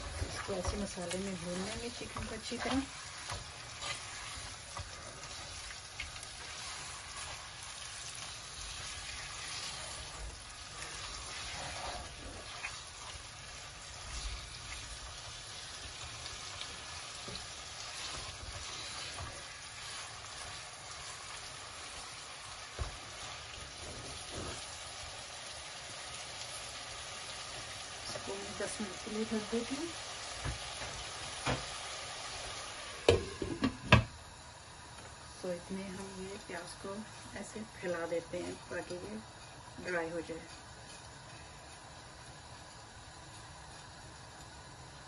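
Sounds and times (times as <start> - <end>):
spatula scraping a pot: 0.0 - 5.7, 9.1 - 13.2
chicken sizzling in oil: 0.0 - 45.0.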